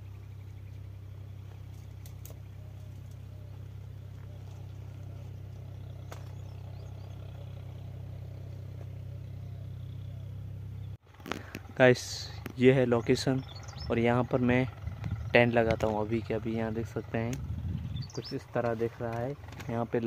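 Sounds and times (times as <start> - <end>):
steady low hum: 0.0 - 20.0
faint clicks: 1.7 - 3.2.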